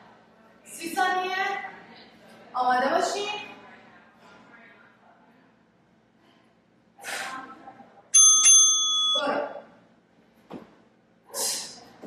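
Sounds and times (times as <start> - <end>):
short sharp breaths: 6.2 - 7.5, 11.3 - 11.9
electronic timer chime: 8.2 - 9.4.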